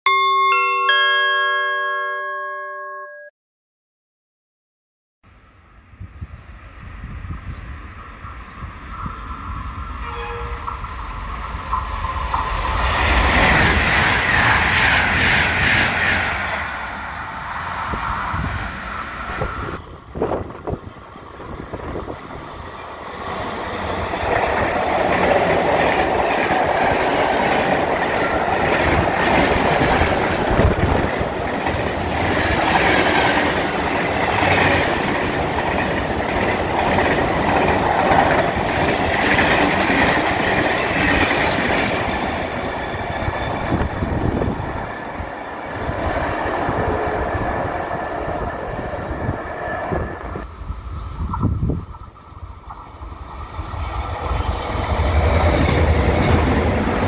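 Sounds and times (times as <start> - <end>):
freight train passing: 5.3 - 57.0.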